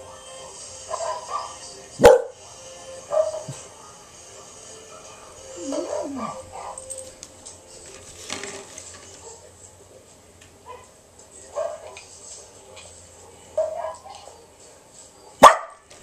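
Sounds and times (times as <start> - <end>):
dog whimpering: 5.6 - 6.4.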